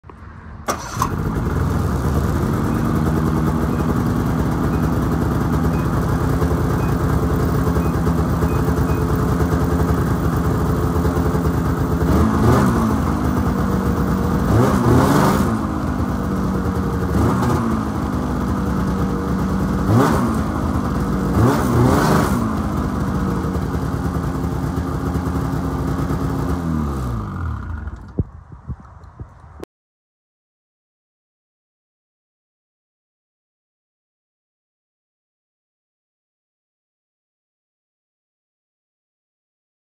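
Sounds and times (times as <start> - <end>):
snowmobile engine idling and revving: 0.8 - 28.2.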